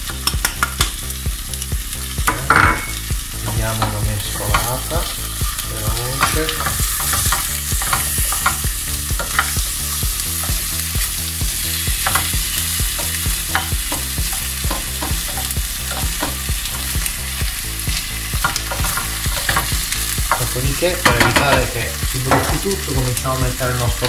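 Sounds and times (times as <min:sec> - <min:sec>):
potatoes sizzling in oil: 0:00.0 - 0:24.0
spoon knocking against pan: 0:02.2 - 0:04.8, 0:12.0 - 0:16.8, 0:18.4 - 0:20.4.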